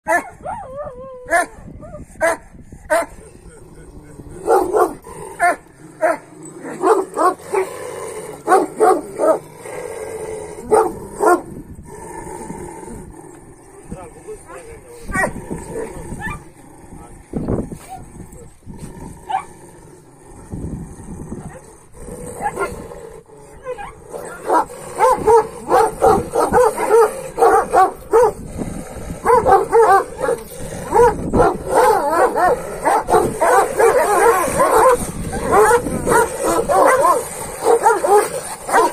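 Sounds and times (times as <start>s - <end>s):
dogs barking: 0.1s - 0.6s, 4.4s - 7.7s, 8.4s - 9.5s, 10.6s - 11.5s, 15.1s - 15.4s, 23.7s - 28.4s, 29.2s - 38.9s
dogs yelping whine-barks: 19.3s - 19.5s, 22.4s - 22.8s, 29.2s - 38.9s.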